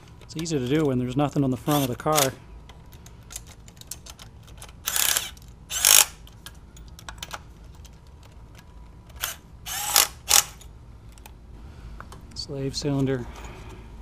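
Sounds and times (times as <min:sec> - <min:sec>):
tools and parts clicking: 0:00.0 - 0:11.4
cordless ratchet driving bolts: 0:03.4 - 0:06.4.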